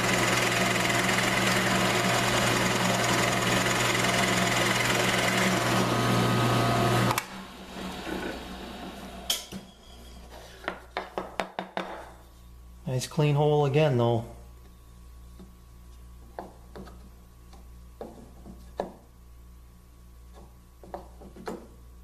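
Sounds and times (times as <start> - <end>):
drill press boring into wood: 0.0 - 9.0.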